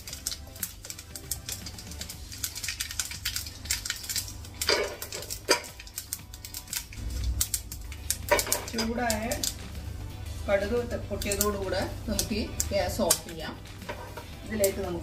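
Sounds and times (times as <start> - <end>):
seeds popping in hot oil: 0.0 - 15.0.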